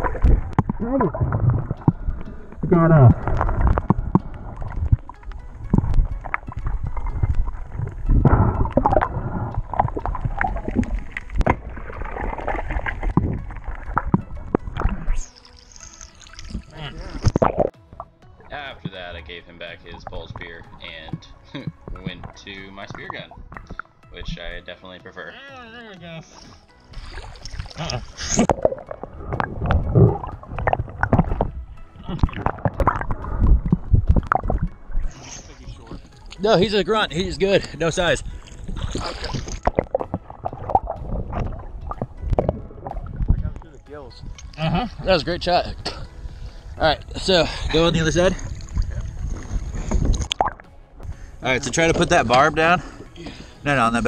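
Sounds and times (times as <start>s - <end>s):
underwater gurgling and sloshing: 0.0s - 25.2s, 26.2s - 54.0s
camera knocking and splashing: 5.7s - 14.9s, 27.0s - 31.6s.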